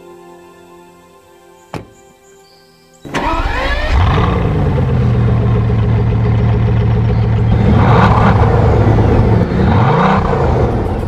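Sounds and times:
car engine idling and revving: 0:03.1 - 0:11.0.

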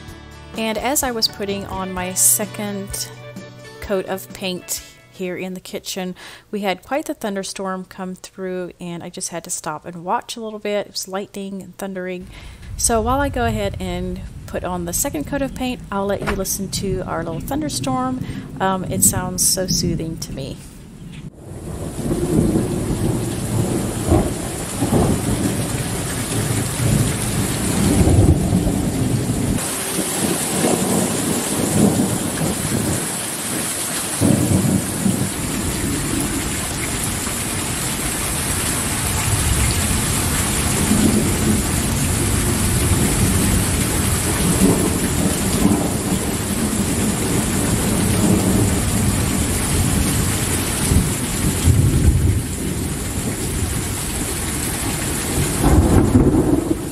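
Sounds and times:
steady rain falling: 0:12.2 - 0:56.9
low rumbles of thunder: 0:12.3 - 0:33.6, 0:34.2 - 0:56.9.

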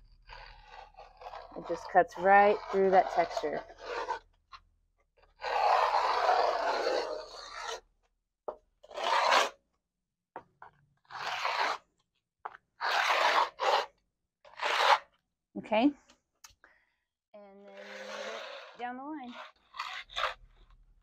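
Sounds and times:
scoring tool scraping coating: 0:00.0 - 0:04.6, 0:05.2 - 0:07.9, 0:08.9 - 0:09.6, 0:10.6 - 0:11.9, 0:12.5 - 0:15.2, 0:17.6 - 0:20.8.

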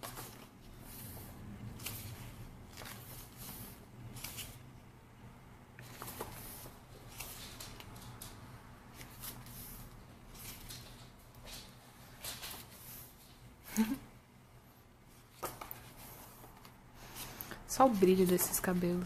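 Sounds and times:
book pages turning: 0:00.0 - 0:04.7, 0:05.8 - 0:11.5, 0:15.2 - 0:19.0
low steady hum: 0:00.0 - 0:19.0.

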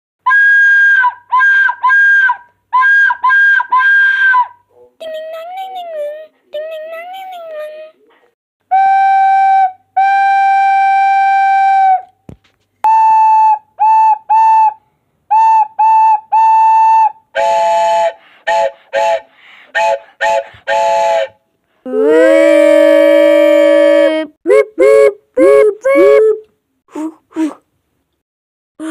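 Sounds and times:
steam locomotive whistle blasts: 0:12.9 - 0:21.4.

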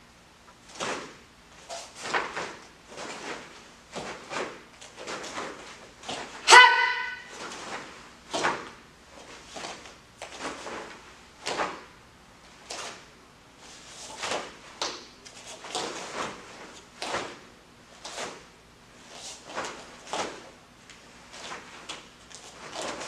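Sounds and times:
bare feet on training mat: 0:13.7 - 0:18.5, 0:21.3 - 0:23.0.

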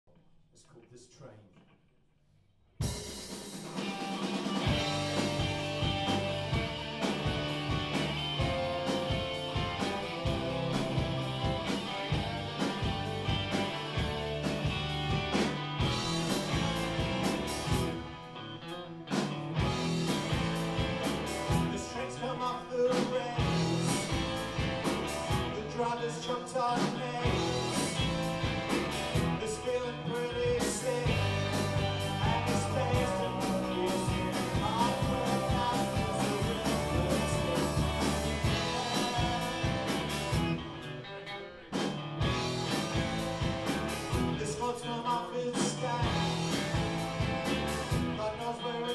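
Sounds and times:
drum kit: 0:02.8 - 0:41.0, 0:41.7 - 0:48.9
electric guitars: 0:02.8 - 0:48.9
man singing: 0:21.5 - 0:24.4, 0:25.4 - 0:28.1, 0:29.2 - 0:40.1, 0:44.3 - 0:46.7, 0:47.9 - 0:48.9.

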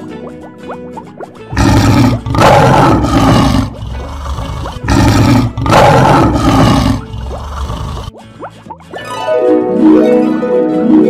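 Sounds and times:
animal roaring: 0:01.6 - 0:08.1
plucked harp music: 0:08.1 - 0:11.0.

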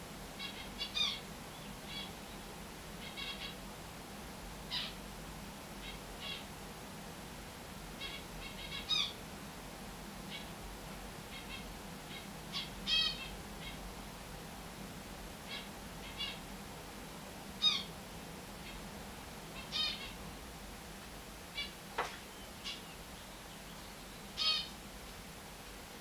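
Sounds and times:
finches calling: 0:00.4 - 0:03.6, 0:04.7 - 0:05.0, 0:08.0 - 0:09.2, 0:11.3 - 0:13.8, 0:15.5 - 0:16.5, 0:17.6 - 0:17.9, 0:19.5 - 0:20.2, 0:21.5 - 0:24.8.

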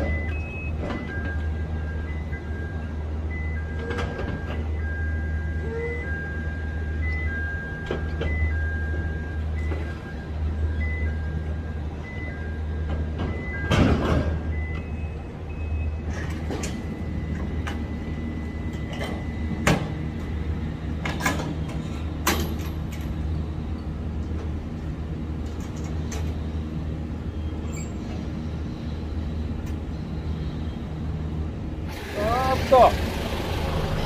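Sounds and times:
truck diesel engine idling: 0:31.9 - 0:34.0.

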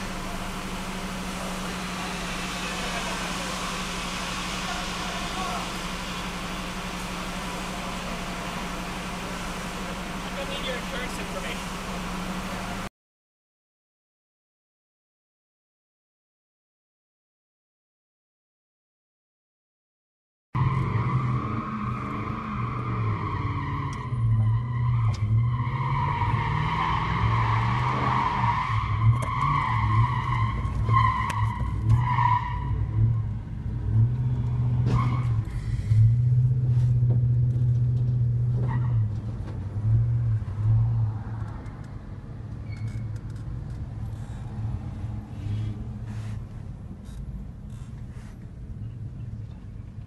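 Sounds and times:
low engine drone: 0:00.0 - 0:12.9.

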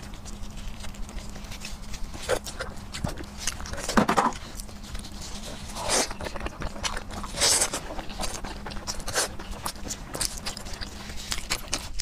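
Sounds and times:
wet chewing and smacking: 0:00.0 - 0:12.0.

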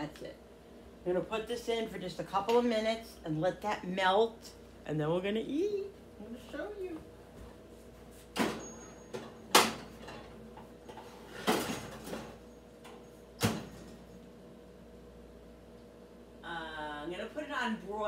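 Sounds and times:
oven door and rack clunking: 0:08.4 - 0:12.4.

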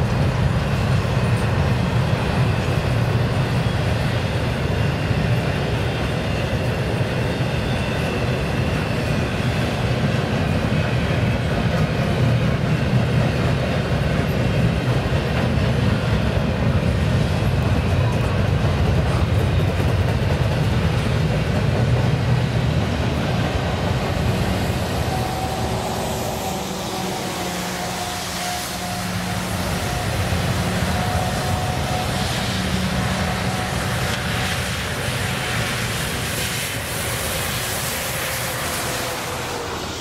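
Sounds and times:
train wheels rolling on rails: 0:00.0 - 0:40.0.

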